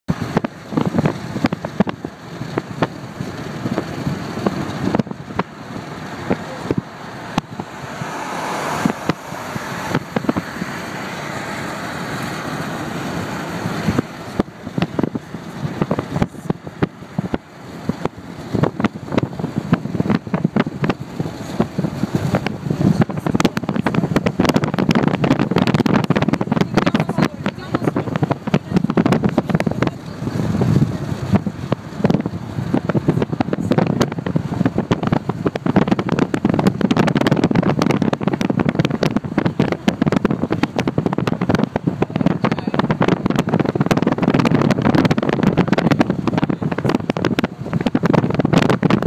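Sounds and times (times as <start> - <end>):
road noise inside vehicle: 0.0 - 49.0.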